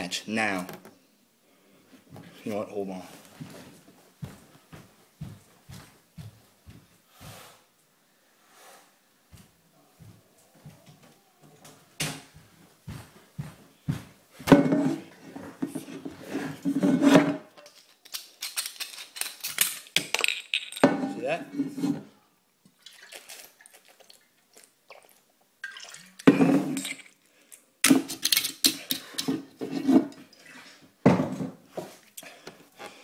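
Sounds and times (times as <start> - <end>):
objects knocking and clattering: 14.4 - 22.1, 26.2 - 27.2, 27.8 - 30.3, 31.0 - 31.6.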